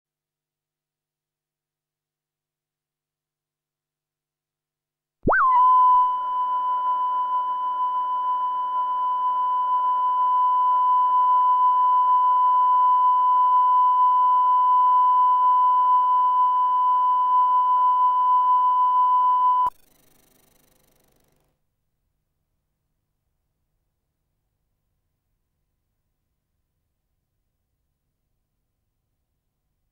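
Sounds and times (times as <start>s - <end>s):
steady test tone beep: 5.3s - 19.8s.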